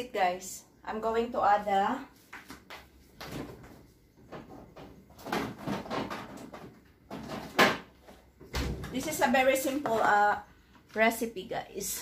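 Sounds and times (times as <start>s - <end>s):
rummaging knocks and rustles: 3.1s - 9.1s.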